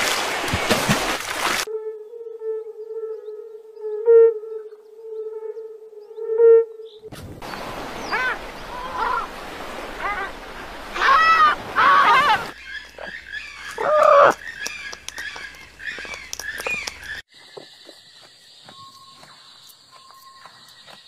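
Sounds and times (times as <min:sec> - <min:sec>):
cockatoo calling: 0:08.0 - 0:09.3, 0:09.9 - 0:17.2.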